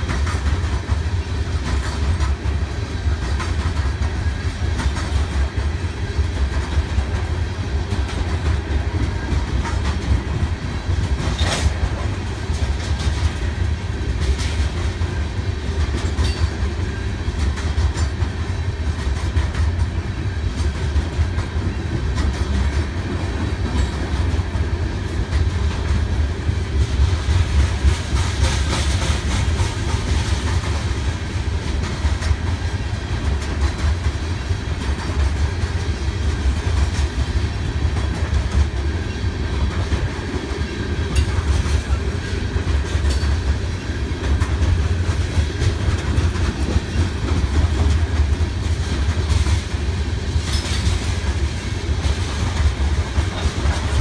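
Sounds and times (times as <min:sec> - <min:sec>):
wheels clicking over rails: 0:00.0 - 0:15.1
freight train rumbling past: 0:00.0 - 0:54.0.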